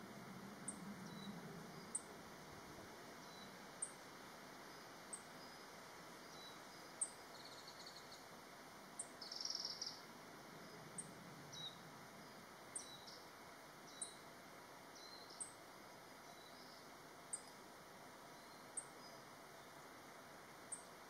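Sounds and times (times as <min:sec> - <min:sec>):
soft high bird chirps: 0:09.0 - 0:10.0.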